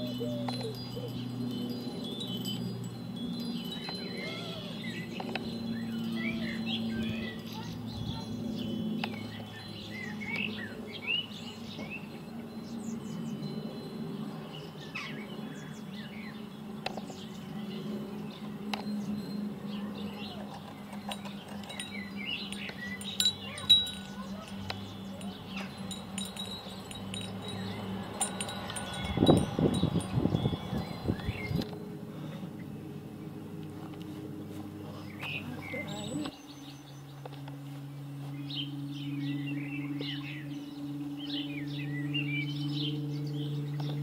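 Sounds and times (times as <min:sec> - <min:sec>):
high ringing tones: 0:00.0 - 0:07.7, 0:17.8 - 0:32.0
birds chirping: 0:00.0 - 0:44.0
propeller aircraft droning overhead: 0:00.0 - 0:44.0.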